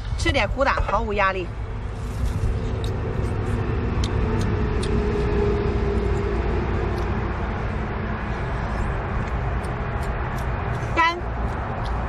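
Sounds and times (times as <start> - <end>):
faint droning hum: 0.0 - 12.0
low background rumble: 0.0 - 12.0.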